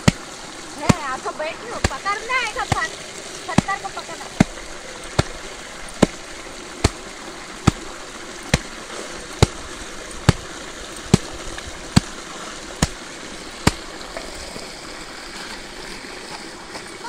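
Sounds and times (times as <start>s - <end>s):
stream water running over rocks: 0.0s - 17.0s
sharp knocking: 3.5s - 5.4s.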